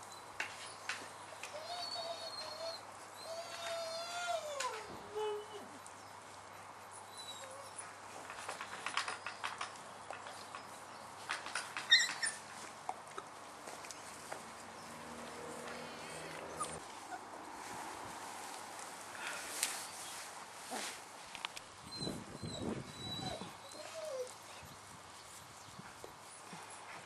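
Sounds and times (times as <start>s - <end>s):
puppies yipping and squeaking: 1.4s - 5.3s, 6.9s - 9.8s, 10.5s - 13.0s, 14.8s - 17.3s, 21.9s - 24.4s
puppy whining: 1.4s - 5.9s, 7.1s - 8.0s, 11.6s - 13.0s, 14.8s - 17.3s, 21.9s - 24.5s.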